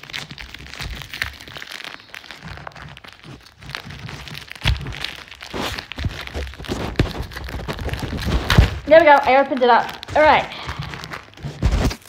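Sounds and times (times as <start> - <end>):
packaging crinkling and rustling: 0.0 - 12.0.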